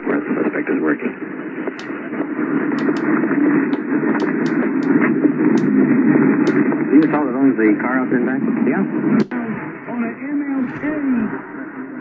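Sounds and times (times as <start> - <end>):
sharp clicks: 1.8 - 2.0, 2.8 - 5.0, 5.6 - 5.8, 6.5 - 7.2.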